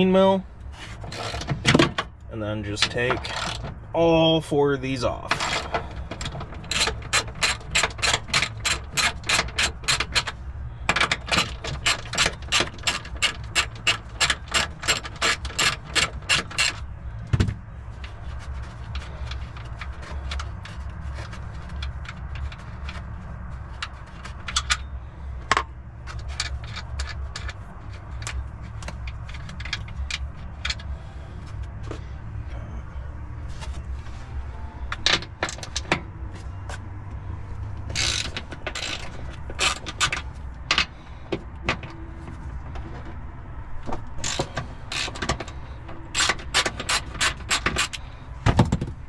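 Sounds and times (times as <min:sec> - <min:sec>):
socket ratchet clicking: 0:37.9 - 0:40.9, 0:46.1 - 0:48.0.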